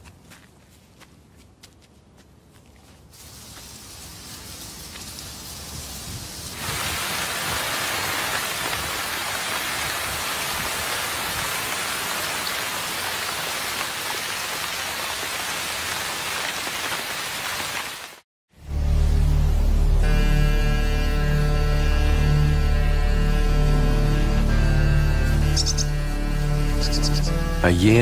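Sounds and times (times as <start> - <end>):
steady rain falling: 3.1 - 18.2.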